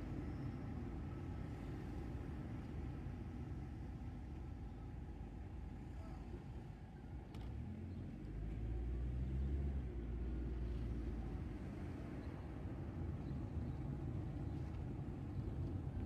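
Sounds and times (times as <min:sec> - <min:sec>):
car engine and tyres rumbling: 0:06.5 - 0:16.0.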